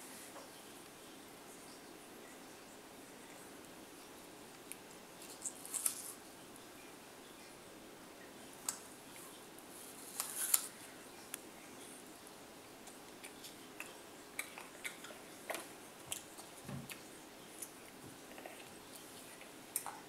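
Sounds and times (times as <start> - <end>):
child chewing crunchy apple: 4.6 - 6.2, 9.2 - 10.8, 12.9 - 20.0.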